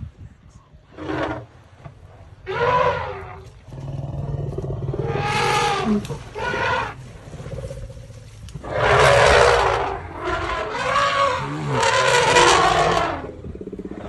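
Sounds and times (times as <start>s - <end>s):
low steady rumble: 0.0s - 14.0s
elephants calling: 8.6s - 13.3s.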